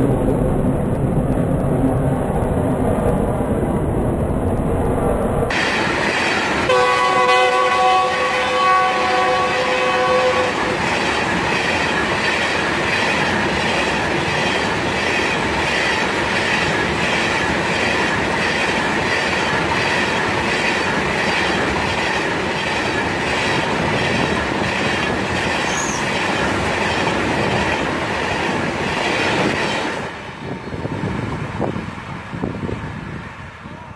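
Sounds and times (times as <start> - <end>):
freight train wheels clattering: 5.5 - 30.4
locomotive multi-tone horn: 6.7 - 10.8.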